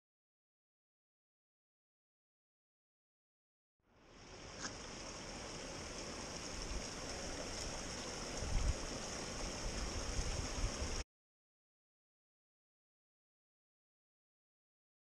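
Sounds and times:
stream running over rocks: 0:03.9 - 0:11.0.

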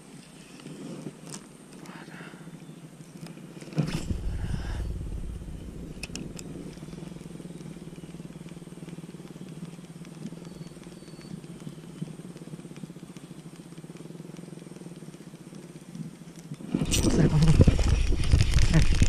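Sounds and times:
faint sharp clicks: 0:03.1 - 0:16.7.

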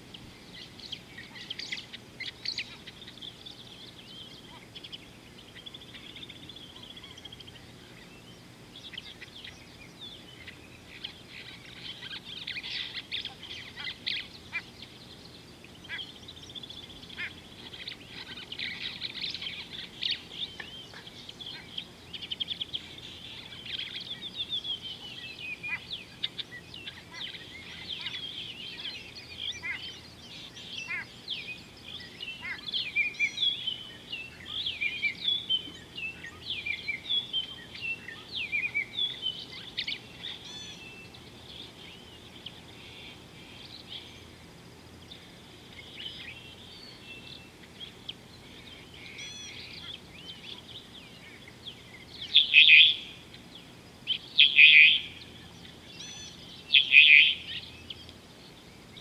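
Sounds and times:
small birds chirping and trilling: 0:00.0 - 0:59.0.

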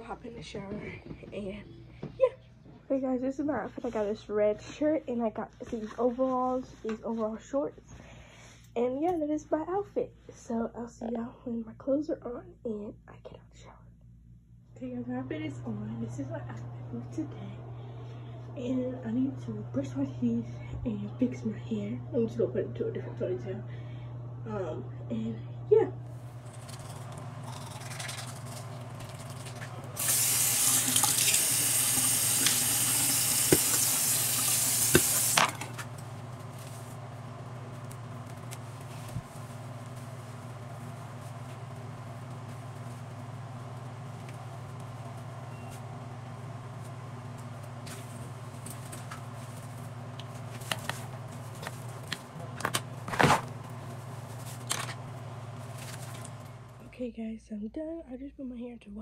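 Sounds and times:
steady low hum: 0:00.0 - 0:59.0
person brushing teeth: 0:26.4 - 0:35.4
tap water running into sink: 0:29.0 - 0:35.7.

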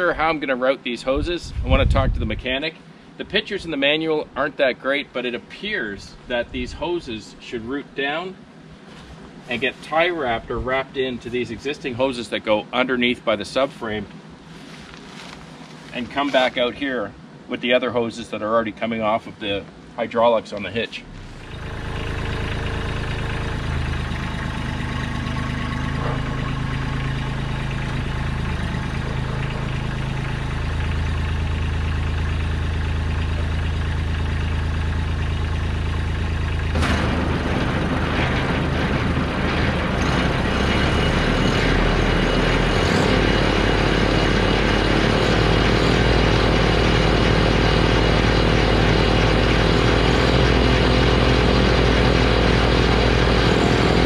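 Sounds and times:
diesel tractor engine running: 0:00.0 - 0:07.5, 0:20.9 - 0:54.0
snowblower auger rushing whir: 0:21.1 - 0:54.0.

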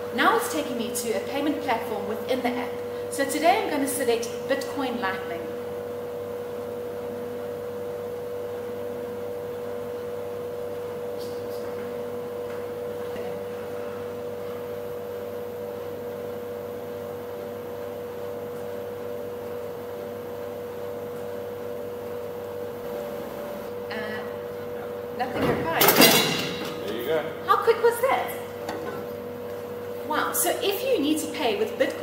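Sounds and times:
vending machine humming: 0:00.0 - 0:32.0.

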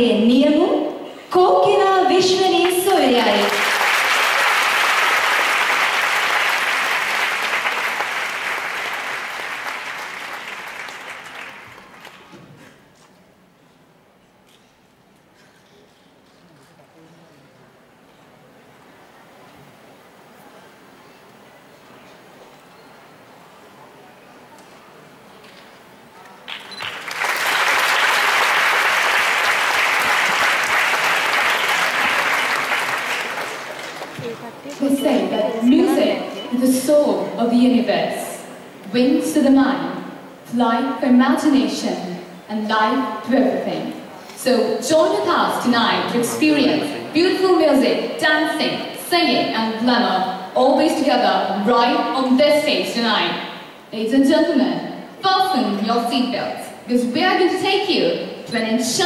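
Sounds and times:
audience applauding: 0:02.6 - 0:12.3, 0:26.4 - 0:34.8.

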